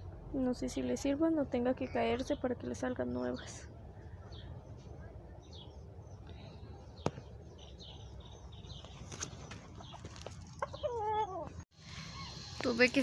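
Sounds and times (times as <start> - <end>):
chick squealing peeps: 10.6 - 12.6.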